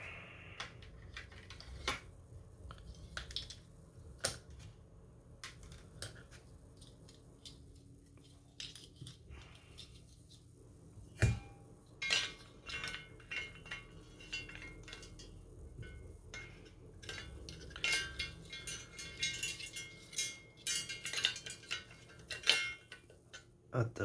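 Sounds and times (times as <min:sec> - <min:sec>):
plastic parts clicking and knocking: 0:00.6 - 0:04.7, 0:05.3 - 0:10.4.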